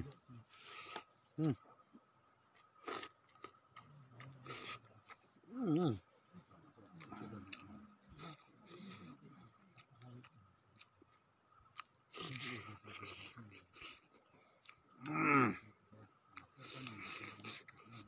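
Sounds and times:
wet chewing mouth sounds: 0:02.5 - 0:06.0, 0:07.0 - 0:15.2, 0:16.3 - 0:18.0.

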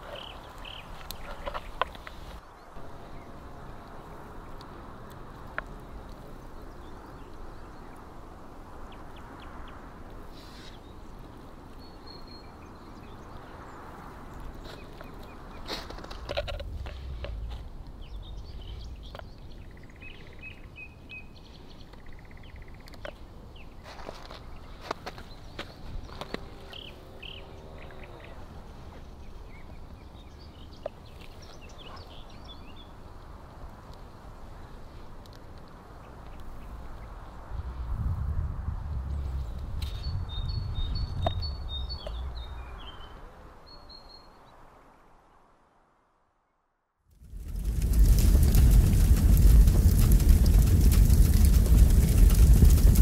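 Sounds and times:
small birds chirping: 0:00.0 - 0:33.5, 0:39.1 - 0:44.5
steady low rumble: 0:16.2 - 0:20.5, 0:47.1 - 0:53.0.

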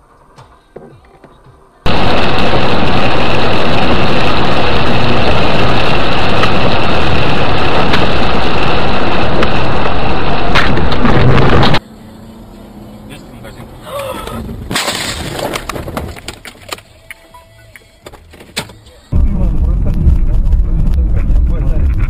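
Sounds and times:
tyre and rain roar: 0:01.9 - 0:11.8, 0:19.1 - 0:22.0.

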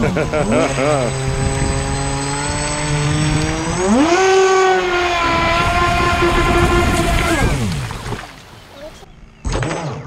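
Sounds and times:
electric boat motor whining: 0:00.0 - 0:08.4.

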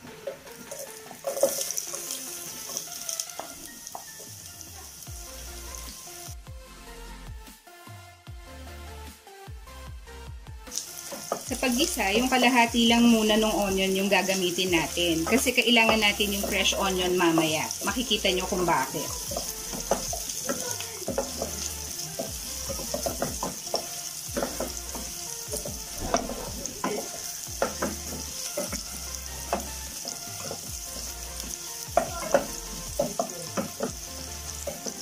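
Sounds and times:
onion sizzling in oil: 0:00.0 - 0:06.4, 0:10.6 - 0:35.0
spatula scraping and tapping pot: 0:00.2 - 0:04.3, 0:11.0 - 0:12.0, 0:14.3 - 0:35.0.

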